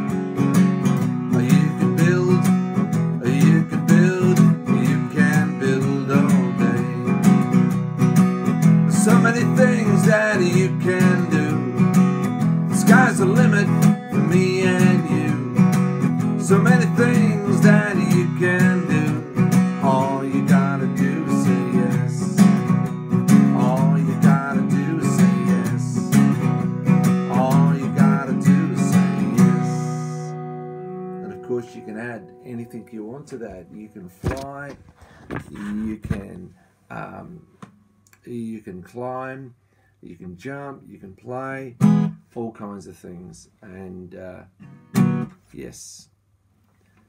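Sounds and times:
acoustic guitar strumming: 0.0 - 36.4, 41.8 - 42.3, 44.5 - 45.4
man singing: 1.2 - 7.5, 8.9 - 12.0, 12.7 - 22.5, 23.3 - 26.5, 27.2 - 30.4, 31.2 - 37.4.

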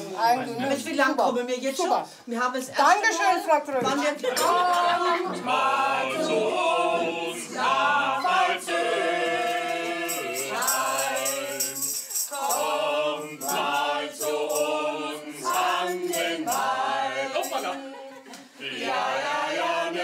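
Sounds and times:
group of voices singing: 4.2 - 20.0
shaker rattling: 9.4 - 16.8.

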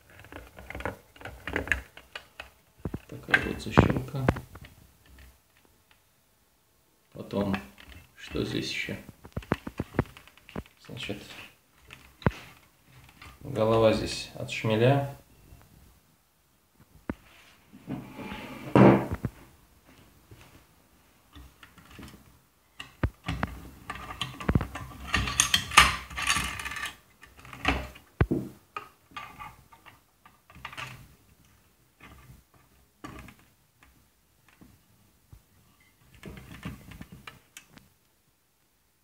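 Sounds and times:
metal stove parts clicking and rattling: 22.8 - 28.0.

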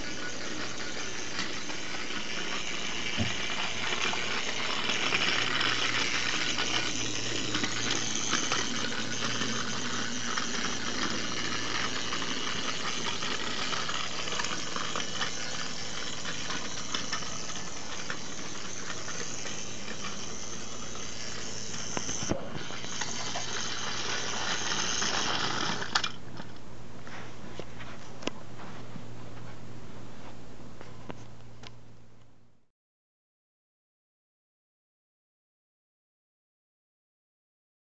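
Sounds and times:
plastic wheels rattling on rails: 0.0 - 26.5
toy motor whirring: 0.0 - 26.5.

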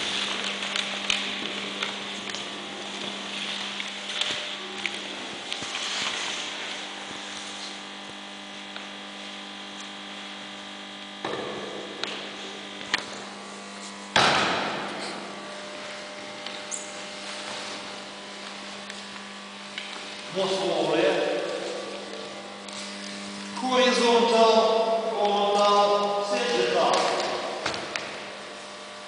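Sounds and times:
electrical hum: 0.0 - 29.0
sudden thud: 14.1 - 14.9.

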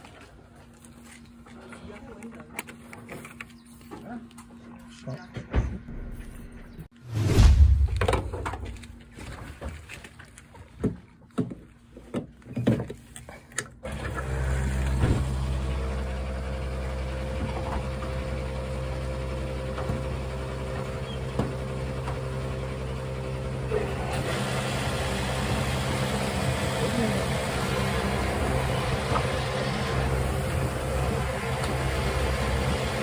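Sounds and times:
fuel pump humming: 13.6 - 33.0.

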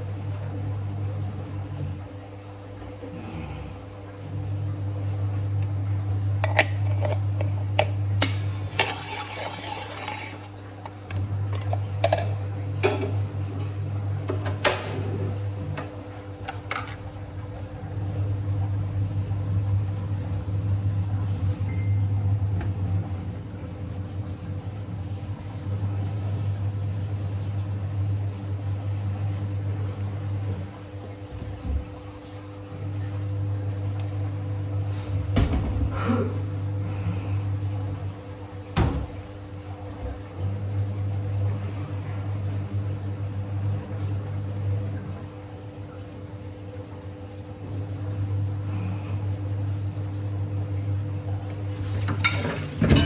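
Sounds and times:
steady low hum: 0.0 - 53.0
metal scraping: 8.8 - 10.5.

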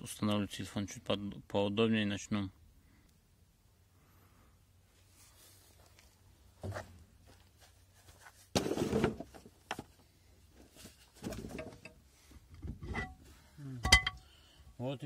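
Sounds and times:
metallic knocks and scrapes: 11.2 - 14.2.

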